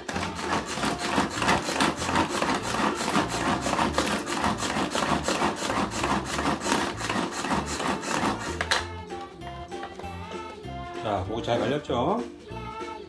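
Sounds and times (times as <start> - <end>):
pull-cord food chopper whirring: 0.0 - 8.9.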